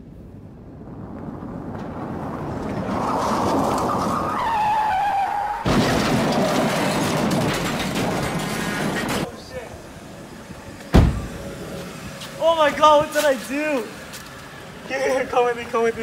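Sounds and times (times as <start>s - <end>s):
car tyres squealing: 2.0s - 9.6s.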